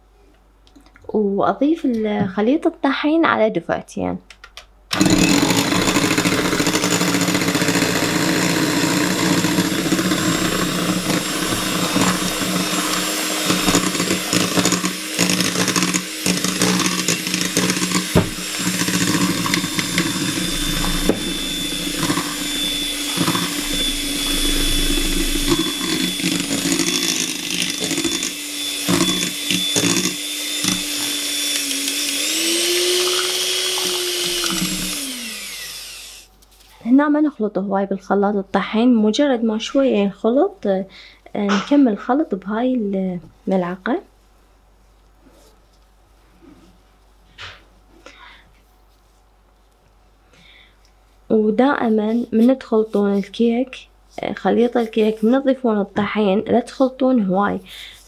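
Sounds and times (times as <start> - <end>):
electric hand mixer running: 4.9 - 36.3.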